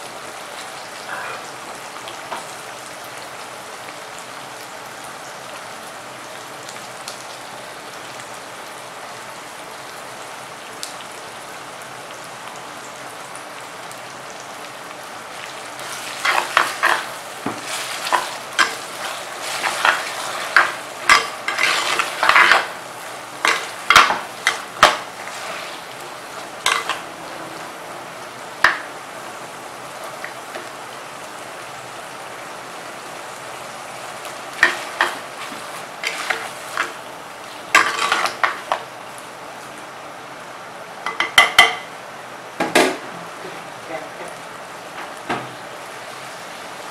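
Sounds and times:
food sizzling in oil: 0:00.0 - 0:40.0, 0:40.9 - 0:42.0, 0:43.3 - 0:46.9
ladle scraping clay pot: 0:16.2 - 0:22.7.

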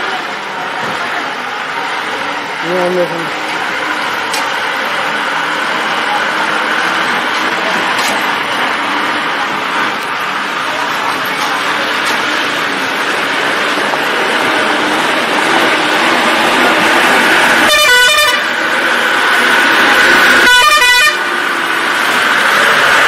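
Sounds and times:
steady rushing noise: 0:00.0 - 0:23.0
truck horn honking: 0:16.4 - 0:18.7, 0:19.4 - 0:21.5.

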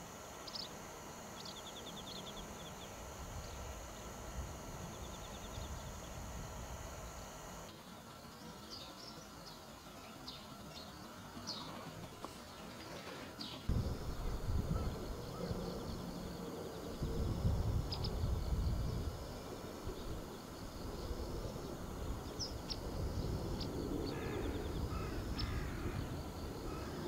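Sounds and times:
small birds chirping: 0:00.0 - 0:27.0
crows cawing: 0:24.1 - 0:27.0.

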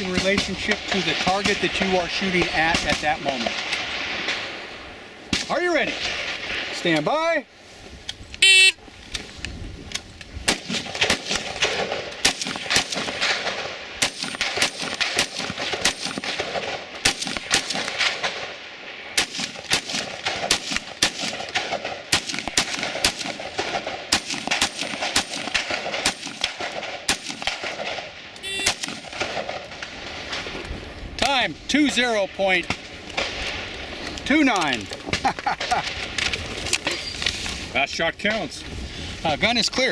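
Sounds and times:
rifle shots: 0:00.0 - 0:04.7, 0:10.4 - 0:30.6
shot timer beep: 0:28.4 - 0:28.7.

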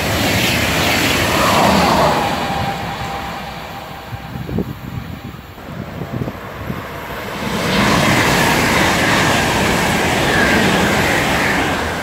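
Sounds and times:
high-speed train passing: 0:00.0 - 0:12.0
low gusty rumble: 0:00.0 - 0:12.0.

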